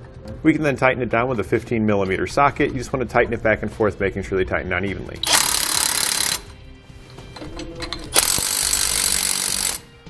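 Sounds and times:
impact wrench bursts: 5.2 - 6.5, 8.1 - 9.9.

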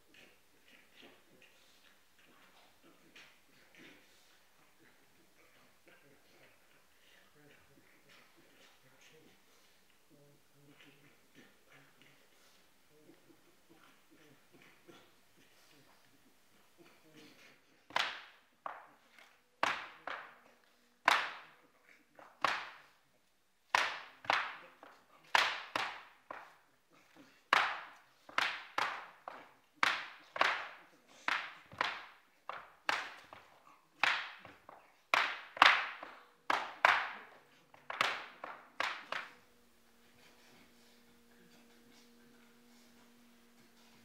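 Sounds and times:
sharp slaps: 17.9 - 21.6, 22.2 - 23.0, 23.7 - 39.4.

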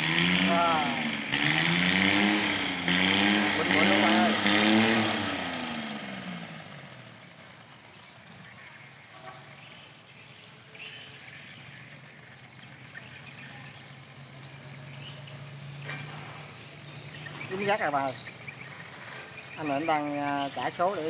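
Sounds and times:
faint boat engine idling: 0.0 - 21.0
faint bird chirps: 6.8 - 21.0.

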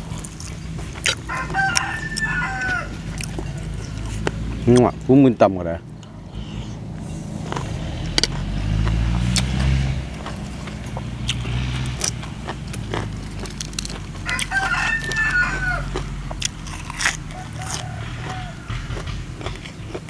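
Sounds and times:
crunching raw vegetables: 0.0 - 5.1, 7.2 - 20.0
rooster crowing: 1.3 - 4.1, 14.2 - 19.4
low rumble: 15.5 - 20.0.

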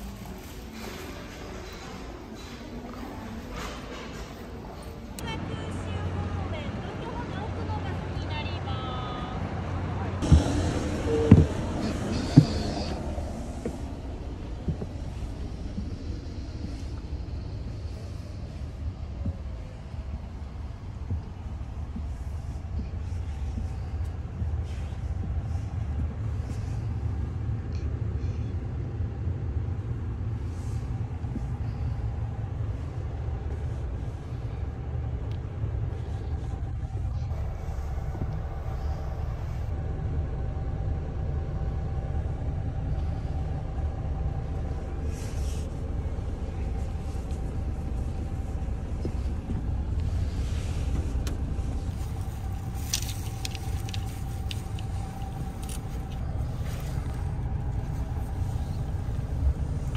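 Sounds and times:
bus engine idling: 0.0 - 59.9
faint steady hum: 0.0 - 59.9
faint rustles: 44.4 - 59.9.

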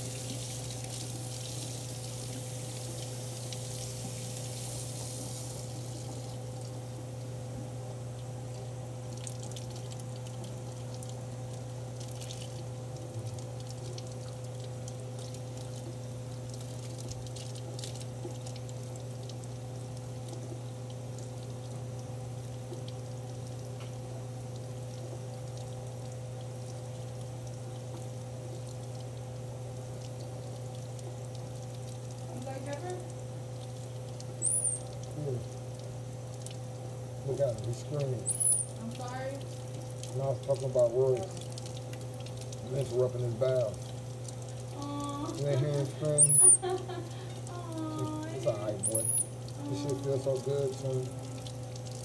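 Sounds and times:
faucet water running: 0.0 - 52.0
steady low hum: 0.0 - 52.0
monkey squeaking: 34.4 - 34.9, 38.2 - 38.8, 46.2 - 46.6, 48.8 - 49.3.

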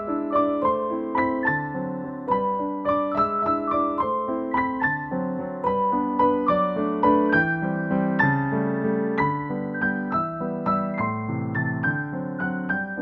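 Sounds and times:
piano melody over chords: 0.0 - 13.0.

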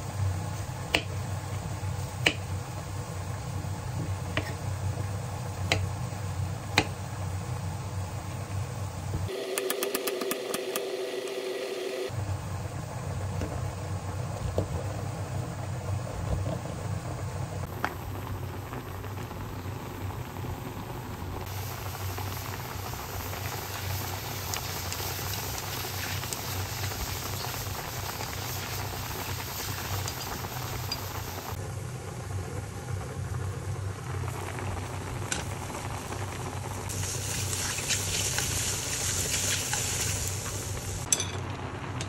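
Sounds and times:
mushrooms sizzling in a pan: 0.0 - 9.4, 10.0 - 41.1
chopsticks stirring in a pan: 23.3 - 31.4, 36.9 - 40.7.

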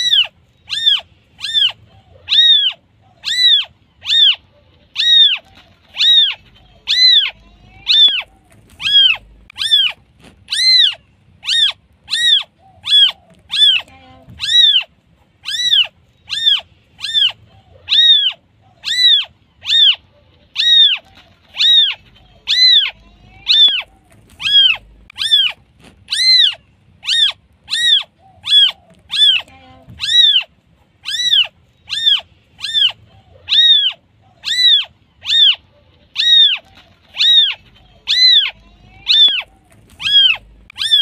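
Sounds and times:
kitten meowing: 0.0 - 4.4, 5.0 - 20.0, 20.6 - 35.6, 36.2 - 41.0.

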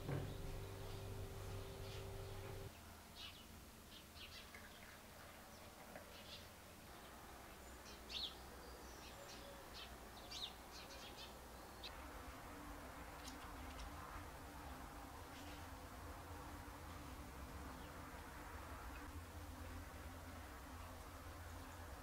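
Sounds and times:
low steady hum: 0.0 - 4.2
small birds chirping: 0.0 - 12.0.

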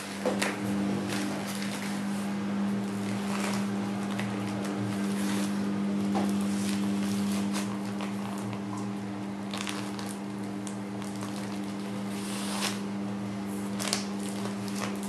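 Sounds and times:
steady low hum: 0.0 - 15.0
plastic casing rustling: 9.5 - 12.8, 13.8 - 15.0.

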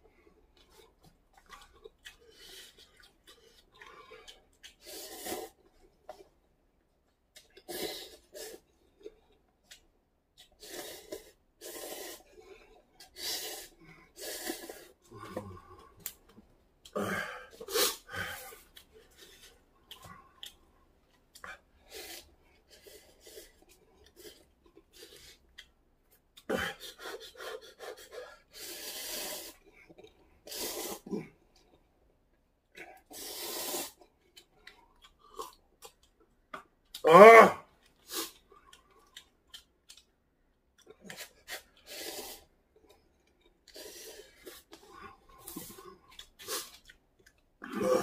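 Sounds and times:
noodles being slurped: 0.6 - 6.3, 9.7 - 16.2, 21.8 - 25.6, 26.5 - 31.1, 33.0 - 36.0, 40.8 - 48.0.

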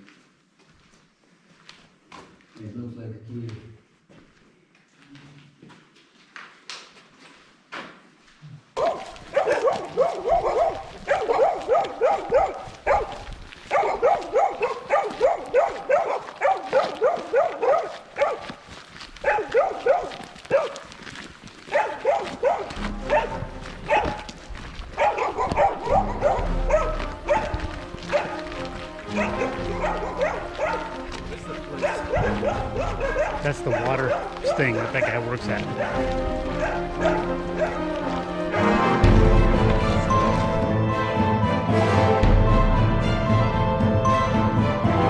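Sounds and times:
dog barking: 8.8 - 18.6, 19.2 - 20.9, 21.7 - 38.8.

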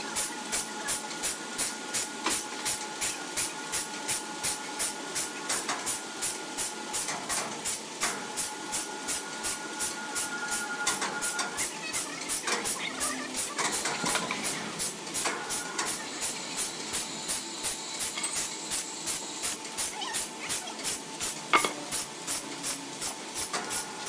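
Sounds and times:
sawmill machinery clattering: 10.8 - 18.7.

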